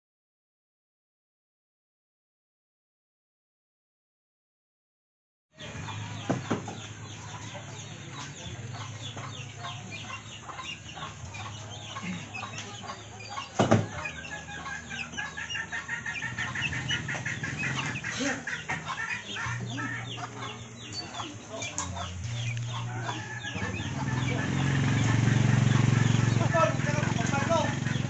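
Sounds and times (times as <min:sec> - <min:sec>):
fowl clucking: 0:05.6 - 0:28.0.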